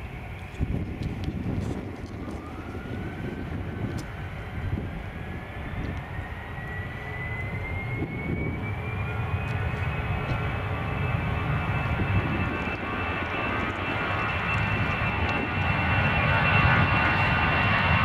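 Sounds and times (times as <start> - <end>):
jet engines spooling up: 0.0 - 18.0.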